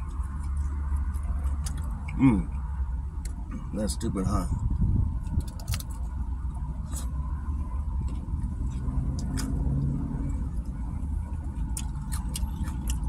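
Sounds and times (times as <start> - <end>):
chewing clicks: 0.0 - 2.2, 11.5 - 13.0.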